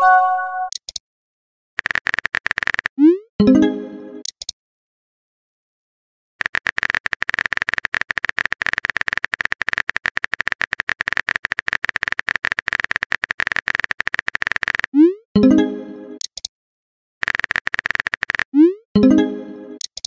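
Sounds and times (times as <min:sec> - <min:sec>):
phone keyboard key clicks: 0:00.7 - 0:01.0, 0:16.2 - 0:16.5.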